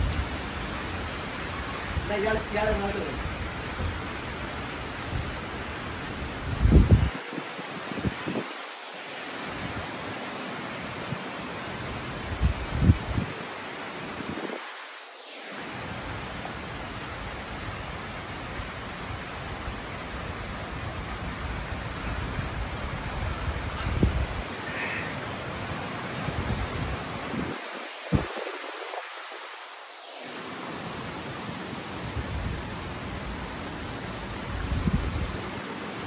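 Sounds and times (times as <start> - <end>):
wind rumble on microphone: 0.0 - 8.6, 11.8 - 14.7, 15.9 - 24.6, 26.0 - 29.4, 31.9 - 35.6
rain on leaves and wet ground: 0.0 - 36.0.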